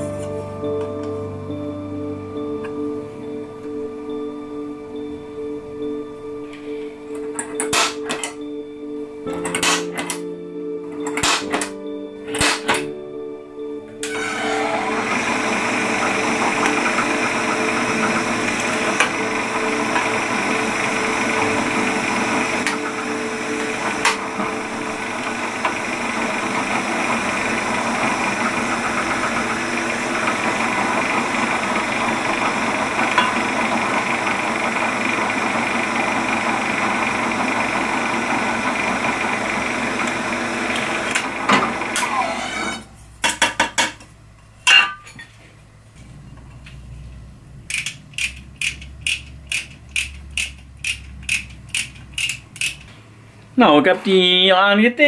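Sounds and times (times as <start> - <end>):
drill press motor running: 14.0 - 42.9.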